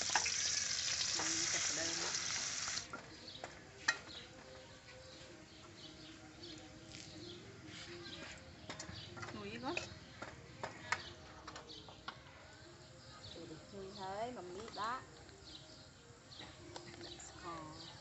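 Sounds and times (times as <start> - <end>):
food sizzling in a wok: 0.0 - 2.9.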